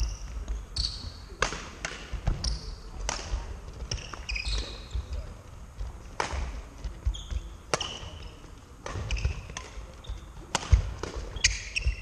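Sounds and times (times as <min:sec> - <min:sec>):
rackets hitting shuttlecock: 0:00.0 - 0:12.0
shoes squeaking on wooden floor: 0:03.8 - 0:05.4, 0:06.8 - 0:10.4, 0:11.2 - 0:12.0.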